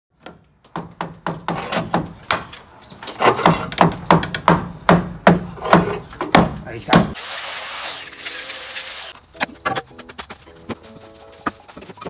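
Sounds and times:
sledgehammer striking wooden post: 0:03.2 - 0:07.2.

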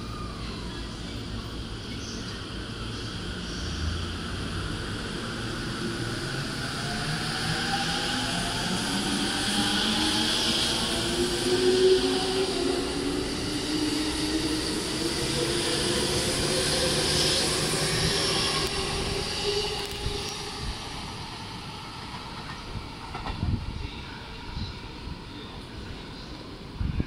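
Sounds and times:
train wheels on rails: 0:03.4 - 0:24.0.

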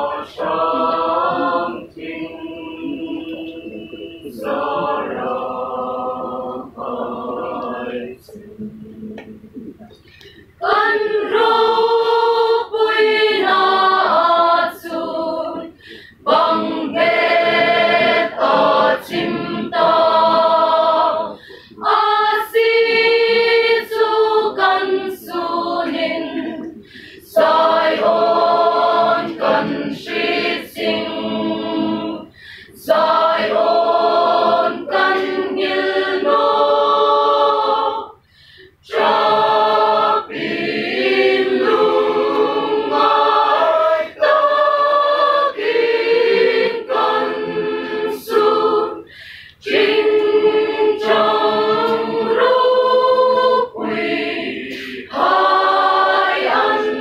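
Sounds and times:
mixed choir singing: 0:00.0 - 0:09.7, 0:10.4 - 0:57.0.

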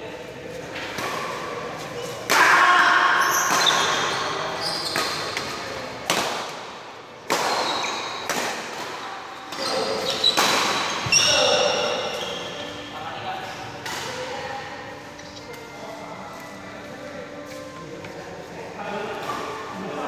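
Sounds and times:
sneakers squeaking on court floor: 0:03.2 - 0:05.5, 0:07.5 - 0:08.2, 0:09.5 - 0:12.9
racket hitting shuttlecock: 0:04.9 - 0:06.7, 0:07.3 - 0:11.2, 0:13.8 - 0:14.3.

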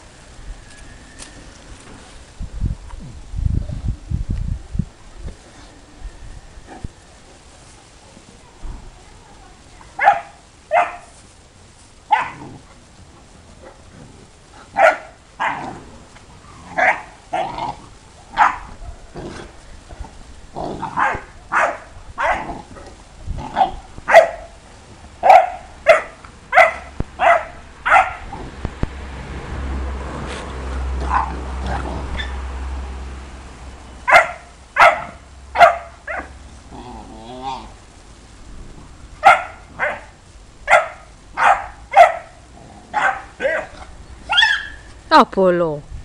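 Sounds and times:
dog barking: 0:10.0 - 0:11.1, 0:12.1 - 0:12.4, 0:14.8 - 0:15.7, 0:16.8 - 0:17.5, 0:18.4 - 0:19.1, 0:21.0 - 0:22.6, 0:23.6 - 0:24.6, 0:25.2 - 0:28.3, 0:34.1 - 0:36.4, 0:39.2 - 0:40.1, 0:40.7 - 0:44.8.

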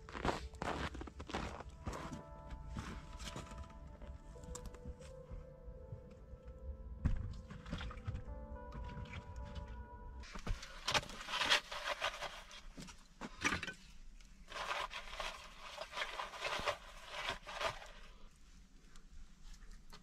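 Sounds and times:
kindling sticks rustling and knocking: 0:08.8 - 0:13.9.

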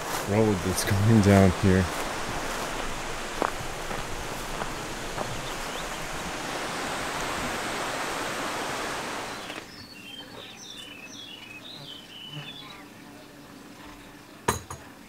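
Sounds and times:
small birds chirping: 0:00.0 - 0:07.3, 0:08.8 - 0:15.0
steady rushing outdoor noise: 0:00.0 - 0:14.4.

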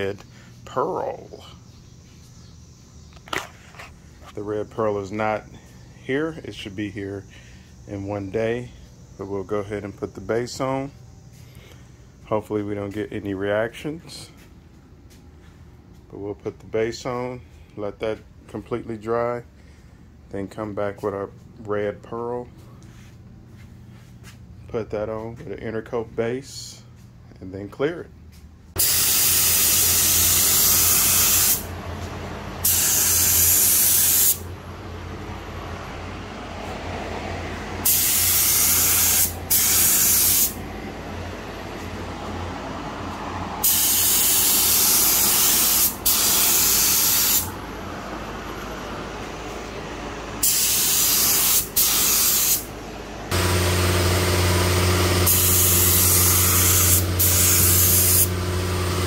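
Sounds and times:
spray gun hissing bursts: 0:28.8 - 0:31.8, 0:32.6 - 0:34.5, 0:37.8 - 0:40.6, 0:43.6 - 0:47.6, 0:50.4 - 0:52.7, 0:53.3 - 0:59.0
low motor hum: 0:31.6 - 0:32.6, 0:34.4 - 0:39.5, 0:40.6 - 0:43.6, 0:47.5 - 0:50.4, 0:52.6 - 0:59.0.

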